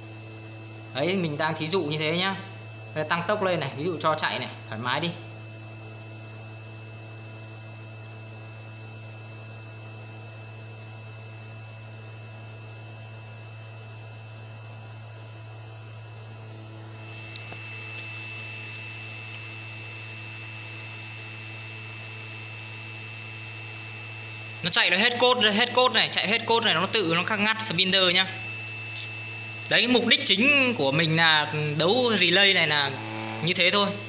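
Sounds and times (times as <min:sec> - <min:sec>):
router spindle motor humming: 0:15.0 - 0:34.0
high-pitched whine: 0:16.6 - 0:34.0.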